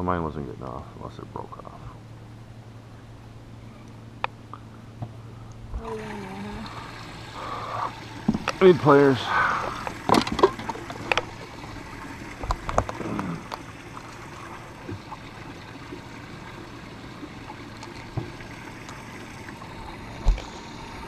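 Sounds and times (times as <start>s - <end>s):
water lapping: 4.5s - 21.0s.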